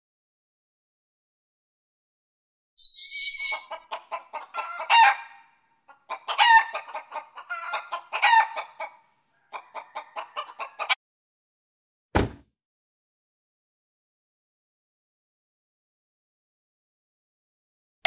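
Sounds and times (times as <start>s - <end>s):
chicken squawk: 2.8s - 11.0s
chicken clucking: 3.5s - 11.0s.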